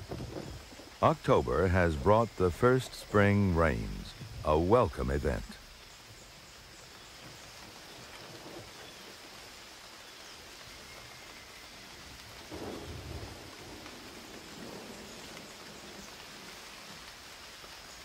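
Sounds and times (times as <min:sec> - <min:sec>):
steady rain falling: 0:00.0 - 0:18.0
low roll of thunder: 0:12.0 - 0:17.0.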